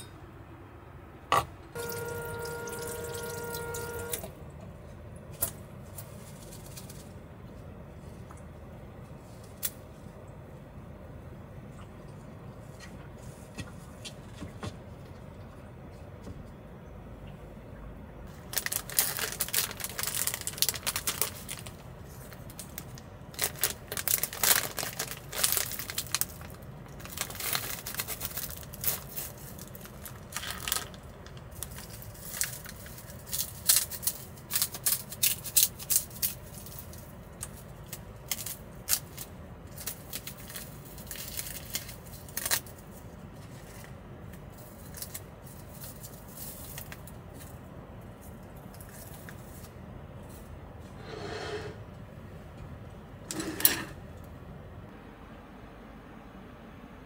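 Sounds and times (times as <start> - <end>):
rustling and crinkling: 4.8 - 10.2, 18.2 - 51.0.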